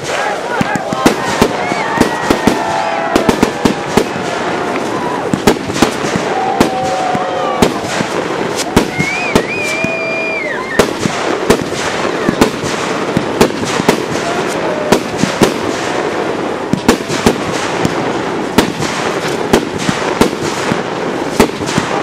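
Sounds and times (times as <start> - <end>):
spark fountains hissing: 0.0 - 15.8
firework shells bursting: 0.0 - 22.0.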